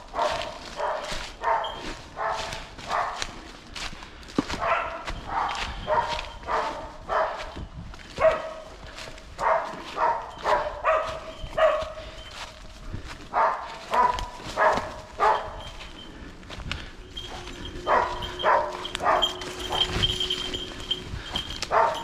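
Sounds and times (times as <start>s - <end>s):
hound barking: 0.0s - 3.5s, 4.5s - 16.3s, 16.9s - 22.0s.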